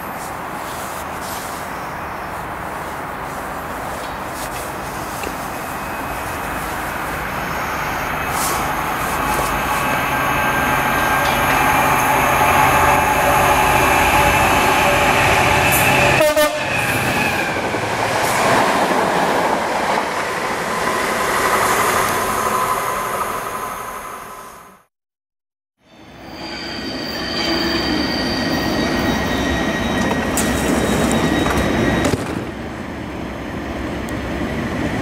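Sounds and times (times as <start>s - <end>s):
diesel locomotive engine: 0.0s - 24.8s
train rail noise: 0.0s - 24.8s, 25.9s - 35.0s.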